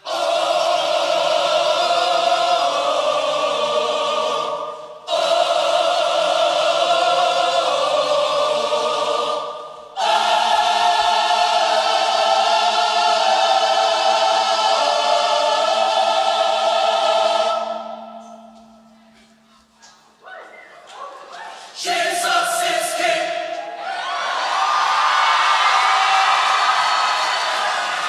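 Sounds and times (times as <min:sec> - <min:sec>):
choir singing held chords: 0:00.0 - 0:20.2, 0:21.4 - 0:28.0.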